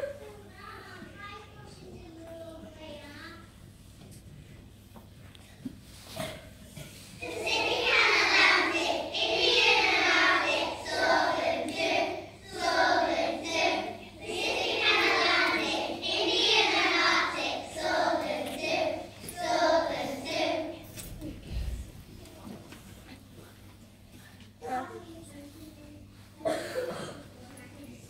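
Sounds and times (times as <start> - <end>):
young children singing in unison: 7.2 - 20.9.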